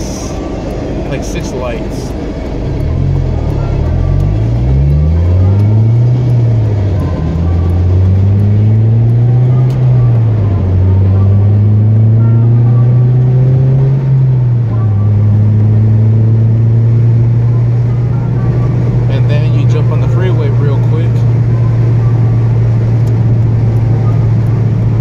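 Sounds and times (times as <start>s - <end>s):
car engine accelerating: 0.0s - 25.0s.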